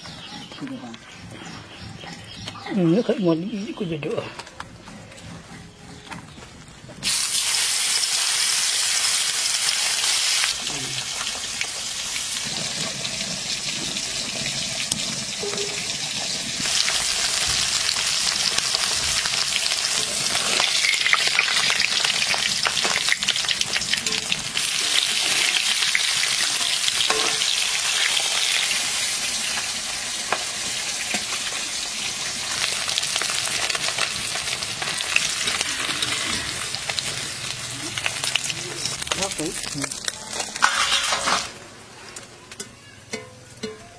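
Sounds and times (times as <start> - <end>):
fish deep-frying in hot oil: 7.0 - 41.9.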